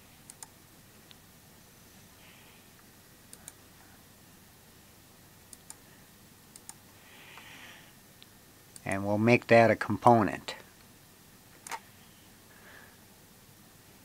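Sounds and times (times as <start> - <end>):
low steady hiss: 0.0 - 14.0
computer mouse clicks: 0.3 - 0.6, 3.3 - 3.6, 5.5 - 5.8, 6.5 - 6.8, 11.6 - 11.8.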